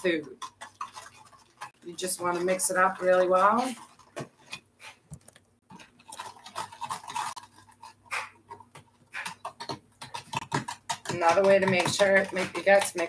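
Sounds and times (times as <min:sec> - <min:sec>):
utensil tapping glass bowl: 0:09.4 - 0:13.0.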